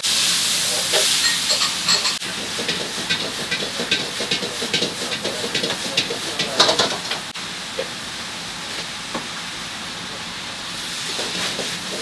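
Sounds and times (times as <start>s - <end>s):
vegetables sizzling in a wok: 0.0s - 12.0s
utensils knocking and scraping: 1.2s - 7.2s.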